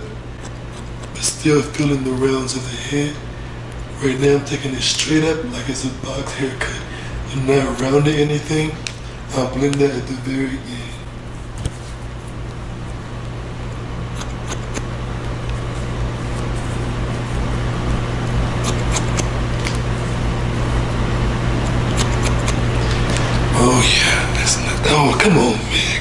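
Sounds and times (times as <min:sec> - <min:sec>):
low hum and hiss: 0:00.0 - 0:26.0
shears snipping hair: 0:14.1 - 0:17.4, 0:18.5 - 0:19.9, 0:21.6 - 0:23.4.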